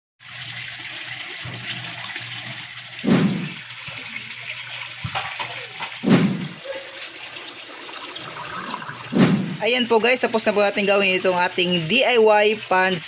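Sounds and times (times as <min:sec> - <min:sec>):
water pouring and trickling: 0:00.2 - 0:13.0
low gurgles: 0:03.0 - 0:03.6, 0:06.0 - 0:06.7, 0:08.2 - 0:09.6.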